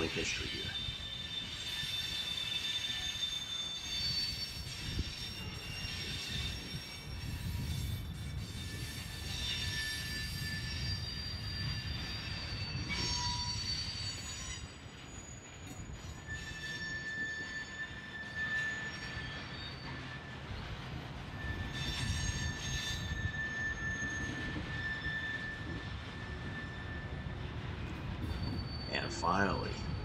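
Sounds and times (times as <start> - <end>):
high wheel squeals: 0.0 - 30.0
train wheels rumbling on rails: 0.0 - 30.0.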